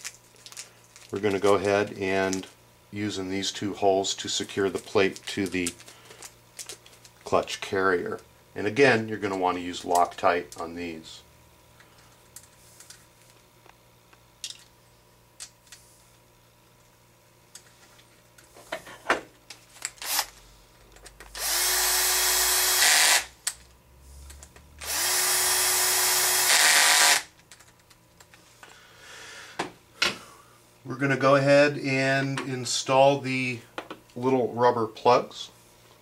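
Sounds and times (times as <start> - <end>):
cordless drill driving screws: 21.4 - 23.3, 24.8 - 27.3.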